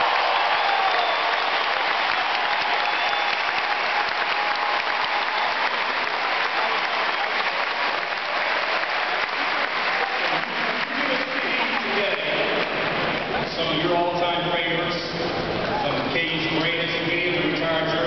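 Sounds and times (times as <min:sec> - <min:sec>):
crowd applauding: 0:00.0 - 0:13.8.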